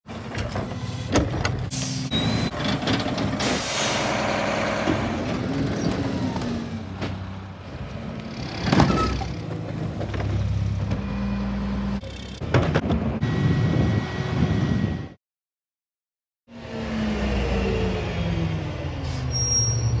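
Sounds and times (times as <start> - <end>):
garbage truck engines running: 0.1 - 15.0.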